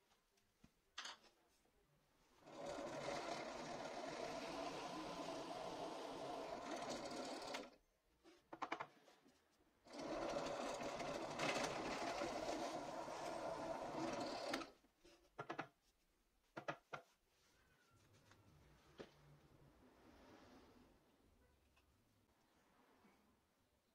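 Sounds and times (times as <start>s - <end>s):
drill press boring wood: 2.5s - 7.7s, 9.9s - 14.7s.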